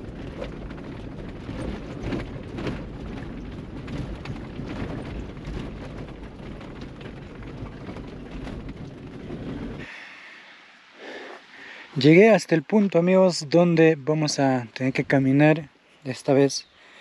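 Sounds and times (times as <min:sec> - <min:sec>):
knocks and rattles: 0:00.0 - 0:09.9
engine and tyres rumbling: 0:00.0 - 0:15.9.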